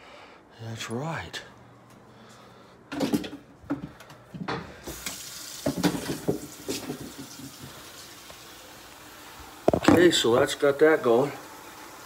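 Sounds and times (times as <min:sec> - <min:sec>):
utensils clattering in sink: 0:04.9 - 0:07.8
tap water running into sink: 0:04.9 - 0:08.5.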